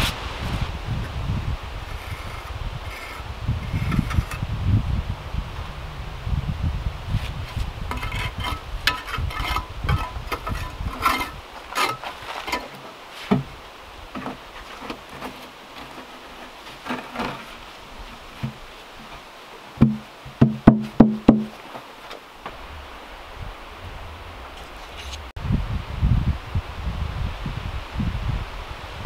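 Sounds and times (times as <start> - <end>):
loud hollow knocks: 19.8 - 21.6.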